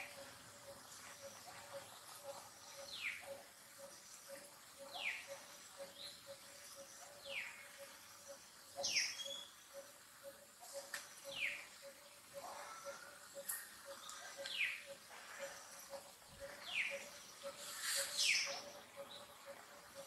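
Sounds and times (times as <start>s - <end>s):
faint steady pulse: 0.0s - 20.0s.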